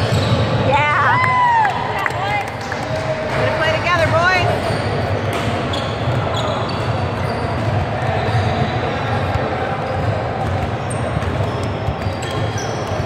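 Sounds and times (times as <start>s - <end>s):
shoes squeaking on court: 0.0s - 0.6s, 3.4s - 9.0s, 9.6s - 13.0s
spectator chatter echoing: 0.0s - 13.0s.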